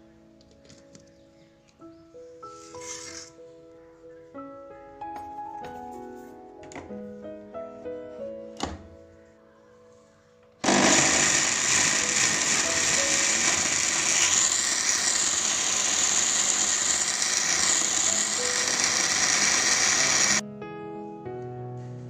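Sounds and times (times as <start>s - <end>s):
blender running: 10.6s - 20.4s.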